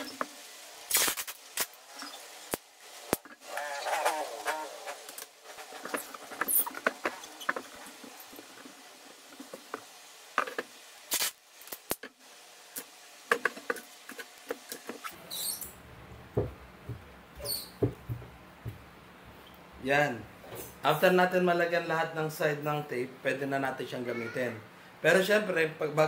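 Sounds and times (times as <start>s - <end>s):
tape pulled from roll: 0.0s - 8.8s, 11.1s - 12.1s
packaging tape crackling and rustling: 0.0s - 12.2s.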